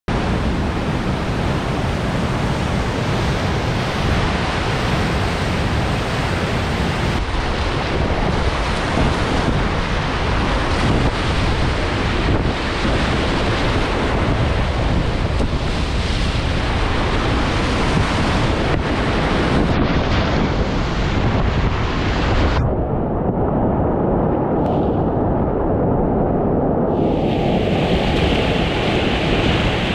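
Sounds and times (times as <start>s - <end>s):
wind buffeting microphone: 0.1s - 29.9s
whitewater rapids rushing: 0.2s - 22.4s.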